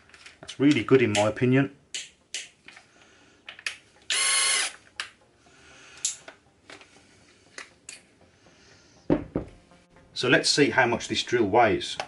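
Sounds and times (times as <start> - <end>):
drill motor whine: 4.1 - 4.8.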